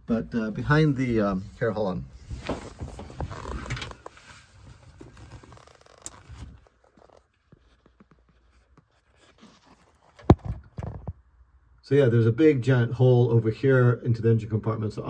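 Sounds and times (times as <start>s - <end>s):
rubbing and scraping around wiring: 0.1s - 11.2s.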